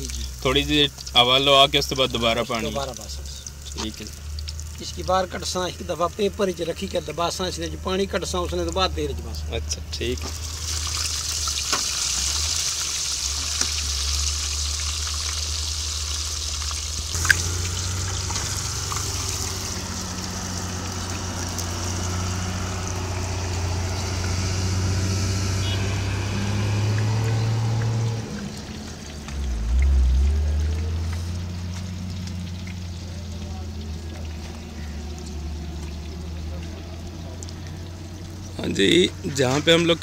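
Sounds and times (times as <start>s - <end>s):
fish sizzling in hot oil: 0.0s - 40.0s
low steady rumble: 13.1s - 40.0s.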